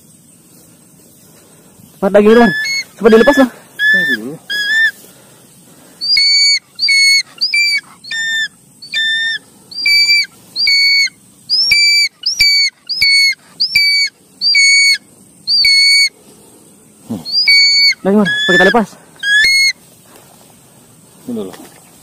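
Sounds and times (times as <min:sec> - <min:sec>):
hawk-eagle shrill whistled screams: 0:02.2 - 0:05.0, 0:06.0 - 0:16.1, 0:17.3 - 0:19.8.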